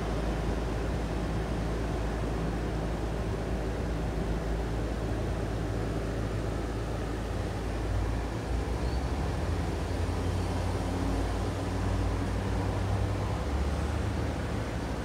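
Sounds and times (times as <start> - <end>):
air conditioner compressor hum: 0.0 - 8.8
air conditioner fan noise: 0.0 - 15.0.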